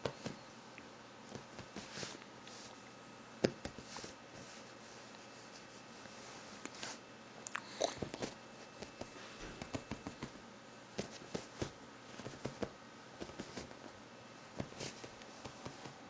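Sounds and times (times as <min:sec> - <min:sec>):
kitten pouncing on bedding: 0:11.0 - 0:13.9, 0:14.6 - 0:16.0.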